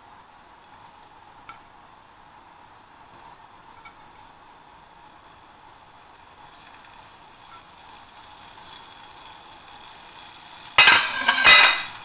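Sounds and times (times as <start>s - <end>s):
cheese frying in oil: 0.5s - 12.0s
loud burst of sizzling: 6.3s - 12.0s.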